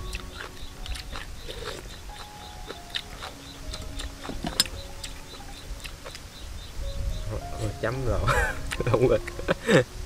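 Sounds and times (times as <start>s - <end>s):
chewing and slurping: 0.0s - 6.3s.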